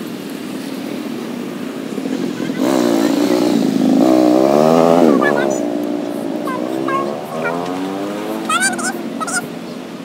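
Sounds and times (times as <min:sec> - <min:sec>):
vehicle engine revving: 0:01.9 - 0:09.6.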